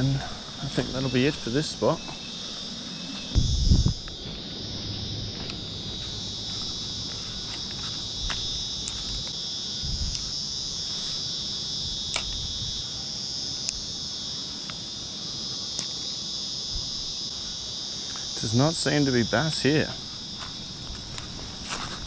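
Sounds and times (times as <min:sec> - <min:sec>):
shrill insect chorus: 0:00.0 - 0:22.0
sharp clicks: 0:12.1 - 0:12.4.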